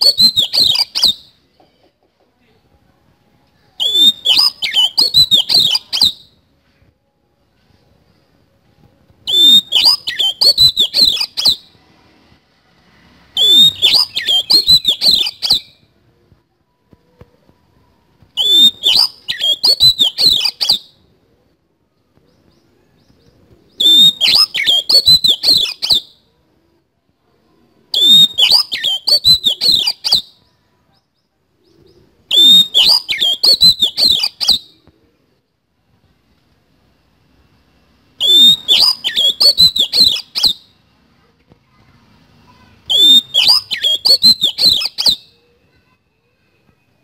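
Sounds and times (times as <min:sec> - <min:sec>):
bird singing harsh chattering notes: 0:00.0 - 0:01.4, 0:03.8 - 0:06.2, 0:09.3 - 0:11.7, 0:13.4 - 0:15.8, 0:18.4 - 0:20.9, 0:23.8 - 0:26.1, 0:28.0 - 0:30.3, 0:32.3 - 0:34.7, 0:38.2 - 0:40.6, 0:42.9 - 0:45.3.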